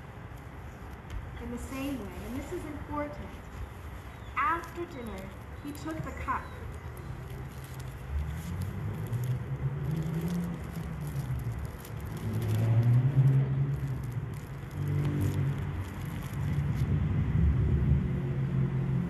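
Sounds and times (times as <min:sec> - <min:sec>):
vehicle engine rumbling past: 0:06.7 - 0:19.0.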